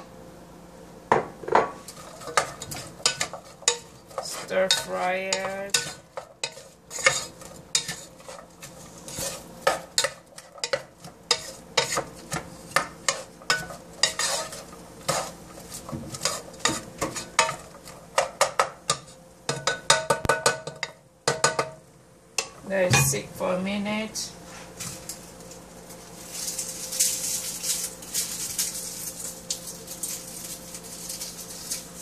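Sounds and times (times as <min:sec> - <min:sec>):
onions sizzling in oil: 0:01.7 - 0:21.7, 0:24.7 - 0:32.0
spoon scraping a saucepan: 0:01.8 - 0:19.7.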